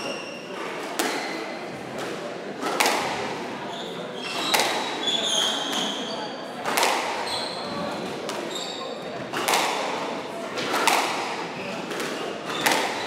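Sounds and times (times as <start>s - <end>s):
squash ball hitting walls: 0.8s - 3.5s, 4.4s - 5.0s, 6.6s - 8.5s, 9.1s - 13.0s
shoes squeaking on wooden floor: 3.7s - 6.2s, 7.2s - 9.4s.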